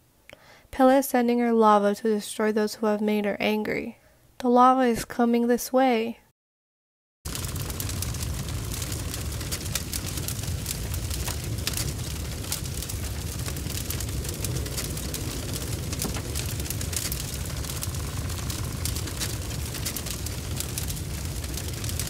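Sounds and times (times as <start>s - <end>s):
dense crackling: 7.3s - 22.0s
low rumble: 7.3s - 22.0s.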